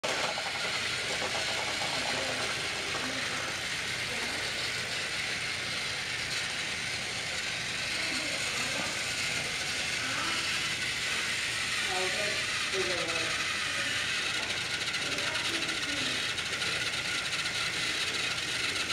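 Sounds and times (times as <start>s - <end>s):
gears and wheels rattling: 0.0s - 18.9s
toy train motor whirring: 0.0s - 18.9s.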